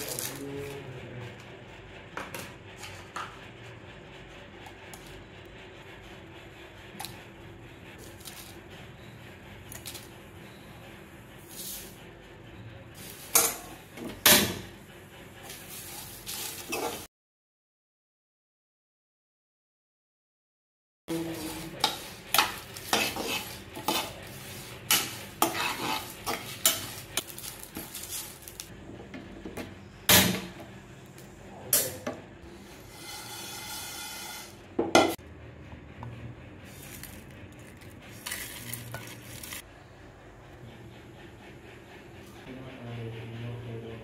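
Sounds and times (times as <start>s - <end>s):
metal spoon scraping spices in pan: 15.5s - 17.0s, 21.1s - 28.7s, 32.8s - 34.6s.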